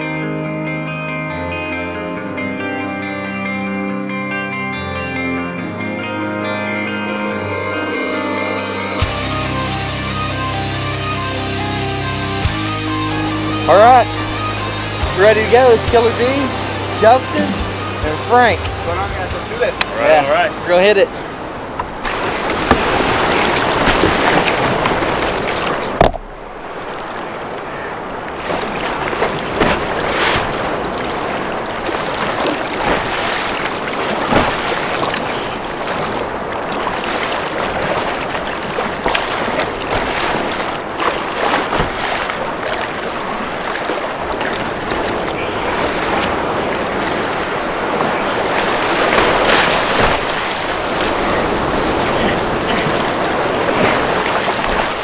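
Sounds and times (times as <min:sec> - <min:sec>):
waves hitting hull: 0:13.6 - 0:55.0
water splashing around kayak: 0:13.7 - 0:55.0
breaking surf: 0:15.1 - 0:55.0
paddle strokes splashing: 0:20.6 - 0:55.0.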